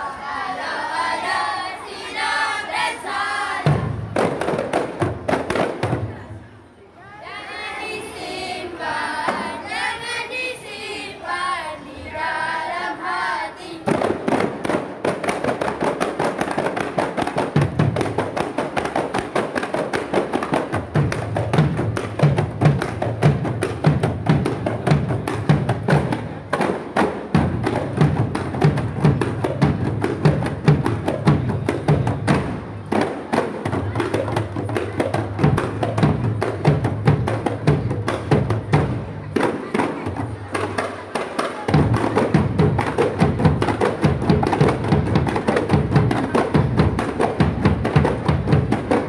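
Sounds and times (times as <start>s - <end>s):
boys chanting: 0.0s - 4.0s, 7.1s - 14.2s
deep barrel drum beats: 3.6s - 6.1s, 13.8s - 40.8s, 41.7s - 49.0s
frame drums playing: 40.2s - 49.0s.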